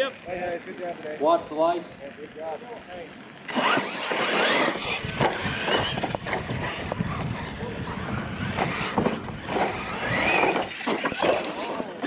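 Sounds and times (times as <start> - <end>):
electric motors whining: 2.1 - 12.0
toy trucks landing with knocks: 3.5 - 6.8, 8.4 - 12.0
tyres churning dirt: 3.5 - 12.0.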